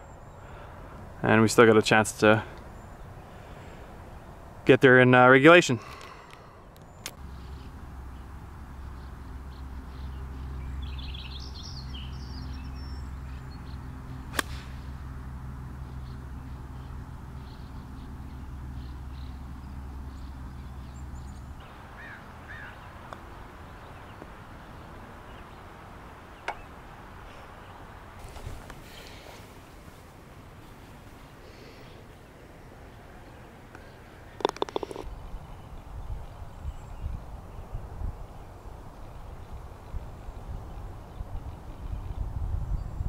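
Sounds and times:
steady low hum: 0.0 - 34.4
bird chirps: 6.8 - 14.8.

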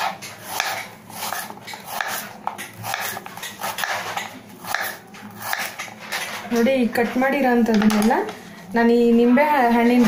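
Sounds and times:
knife slicing banana: 0.0 - 6.0.

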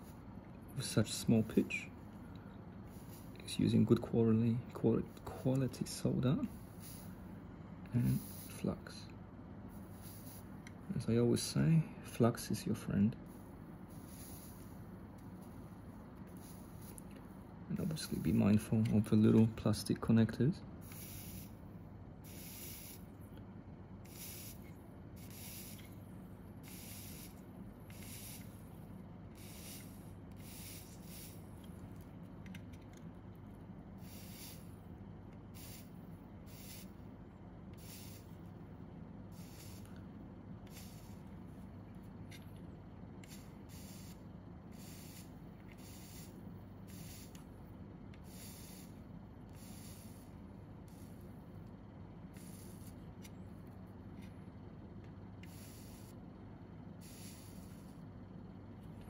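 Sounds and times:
low steady hum: 0.0 - 59.0
flux sizzling under soldering iron: 5.2 - 7.2, 7.9 - 8.7, 9.7 - 10.8, 13.9 - 14.8, 20.8 - 21.6, 22.2 - 23.2, 24.0 - 26.0, 26.6 - 28.7, 29.3 - 33.0, 34.0 - 34.8, 35.4 - 37.0, 37.7 - 38.5, 39.3 - 40.0, 40.6 - 41.4, 43.2 - 47.5, 48.2 - 51.3, 52.3 - 53.1, 55.4 - 56.2, 57.0 - 58.1.

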